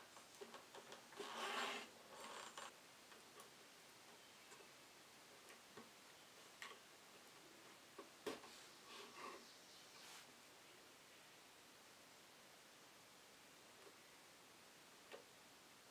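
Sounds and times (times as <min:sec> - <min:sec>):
thread rasping through leather: 0:01.1 - 0:02.7.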